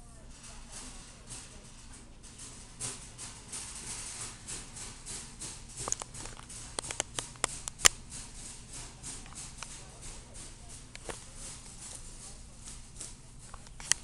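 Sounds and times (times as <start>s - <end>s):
sharp clicks: 5.8s - 8.0s.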